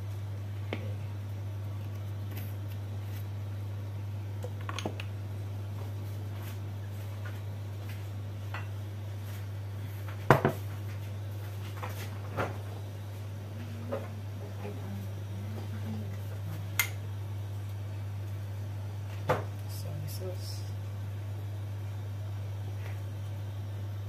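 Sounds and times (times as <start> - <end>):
low hum: 0.0 - 24.0
kitchen items knocking on counter: 10.3 - 10.6.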